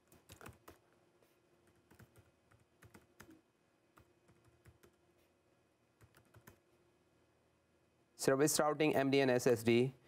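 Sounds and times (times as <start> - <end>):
laptop keyboard typing: 0.0 - 0.9, 1.6 - 5.0, 6.0 - 6.6.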